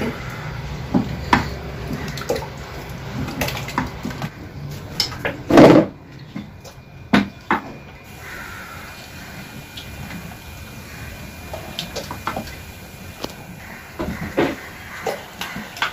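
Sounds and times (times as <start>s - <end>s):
stirring thick batter sloshing: 0.2s - 6.9s.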